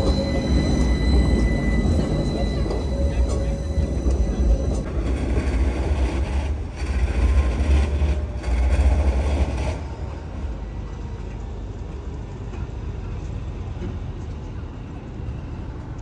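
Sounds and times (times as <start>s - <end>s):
heavy low rumble: 0.0s - 7.7s
tram motor whining: 0.0s - 11.5s.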